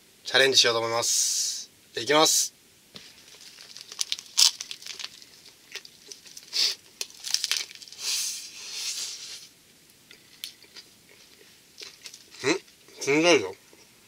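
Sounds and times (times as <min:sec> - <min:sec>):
seaweed wrapper tearing: 0:03.0 - 0:08.0
chewing noises: 0:03.2 - 0:08.0.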